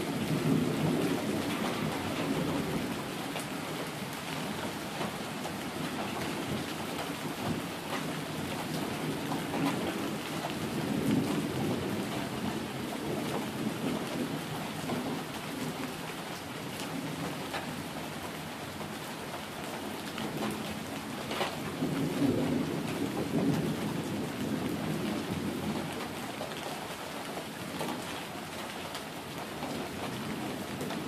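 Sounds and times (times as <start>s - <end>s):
thunder rumbling: 0.0s - 15.9s, 20.2s - 26.2s
rain on pavement: 0.0s - 31.0s.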